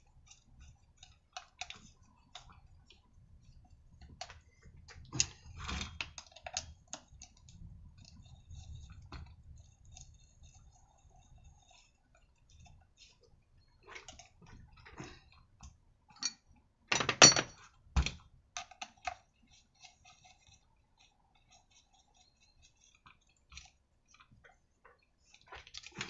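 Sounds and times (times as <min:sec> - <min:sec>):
metal parts clicking and knocking: 0:16.1 - 0:17.7.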